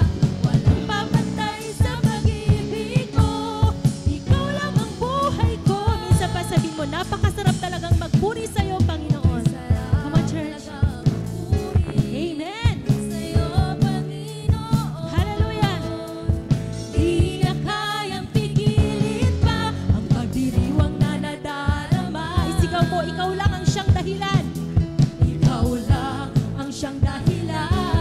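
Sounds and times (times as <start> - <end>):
women singing: 0.0 - 24.6, 25.2 - 28.0
drum kit beat: 0.0 - 28.0
worship band playing: 0.0 - 28.0.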